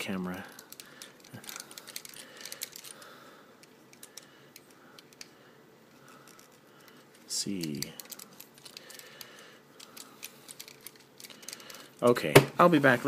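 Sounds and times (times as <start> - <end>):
plastic toy clicks and rattling: 0.5 - 3.0, 7.5 - 12.1.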